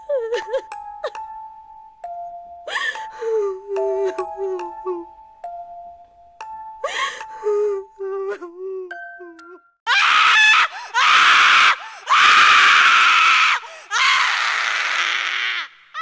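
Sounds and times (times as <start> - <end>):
harsh screams from speaker: 9.9 - 16.0.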